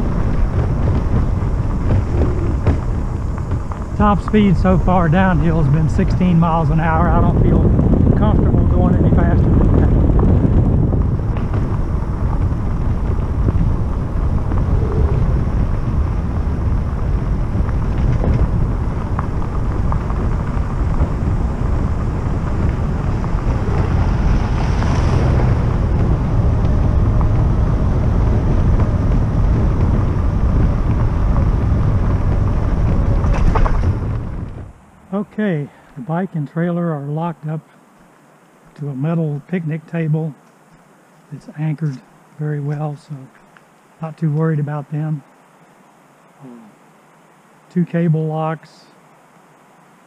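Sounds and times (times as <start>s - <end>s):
wind buffeting microphone: 0.0s - 36.4s.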